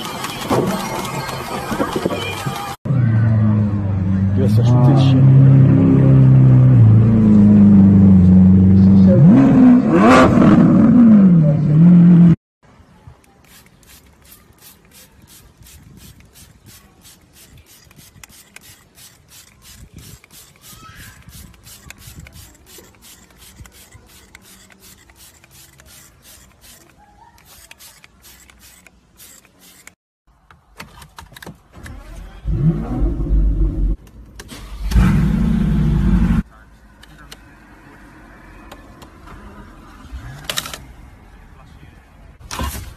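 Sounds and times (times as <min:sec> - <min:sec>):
spray bottle squirts: 0:13.3 - 0:30.0.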